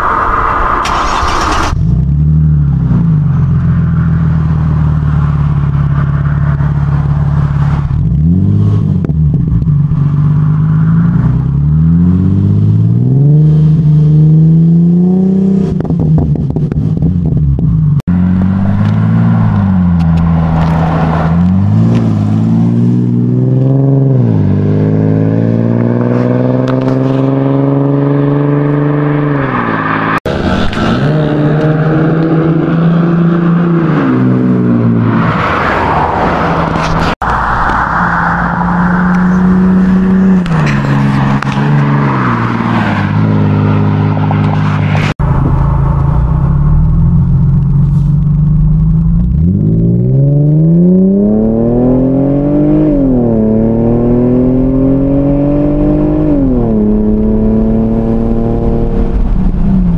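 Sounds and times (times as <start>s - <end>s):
car engine idling and revving: 0.0s - 59.9s.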